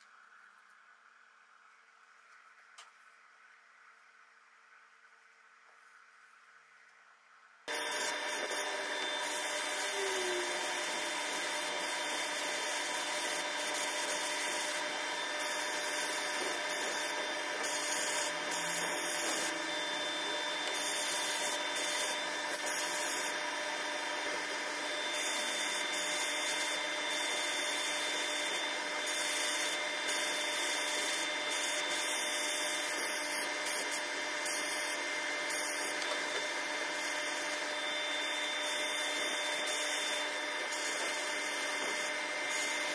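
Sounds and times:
sandblasting gun hissing: 0:07.7 - 0:23.4.

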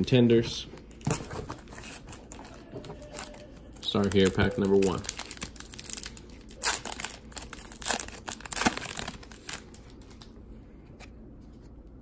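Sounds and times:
card pack wrapper crinkling: 0:01.6 - 0:10.4.

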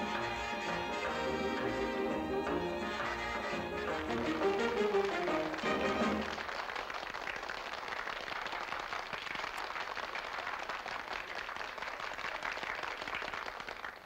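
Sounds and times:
dance band final chord: 0:00.0 - 0:06.4
audience applause: 0:00.0 - 0:14.0.

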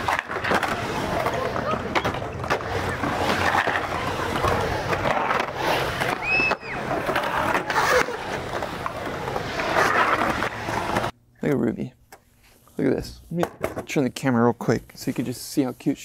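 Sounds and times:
skateboard wheels rolling: 0:00.0 - 0:11.2.

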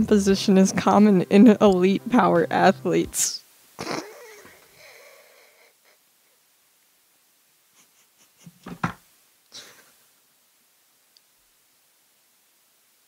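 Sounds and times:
woman's stifled laugh: 0:03.8 - 0:06.0, 0:07.8 - 0:08.8.

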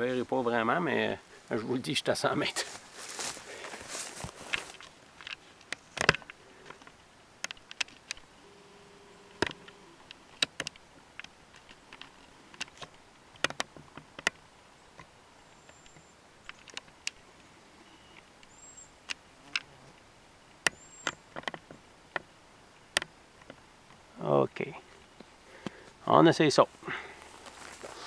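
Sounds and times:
camcorder zoom motor whine: 0:08.4 - 0:10.0
sharp irregular clicks: 0:09.3 - 0:14.4.

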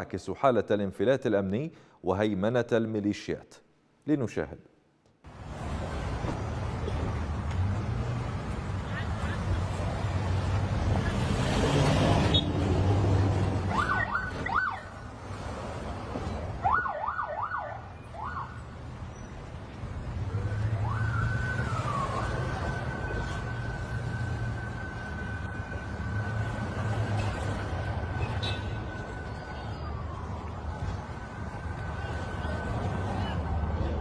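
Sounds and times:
low rumble of engines: 0:05.3 - 0:34.0
vehicle sirens whooping and wailing: 0:08.2 - 0:15.3, 0:16.3 - 0:34.0.

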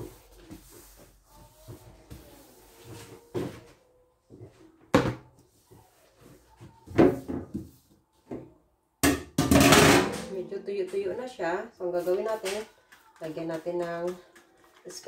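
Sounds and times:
objects knocking on metal sink: 0:09.0 - 0:10.4.

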